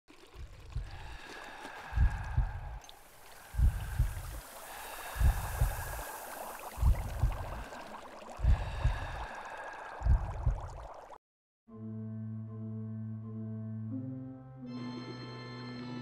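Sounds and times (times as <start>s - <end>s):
water splashing and bubbling: 0.0s - 11.2s.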